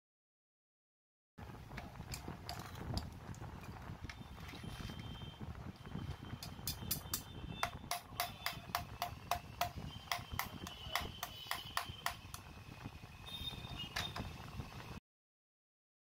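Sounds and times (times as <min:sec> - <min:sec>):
rapid metallic tapping: 0:06.4 - 0:12.5.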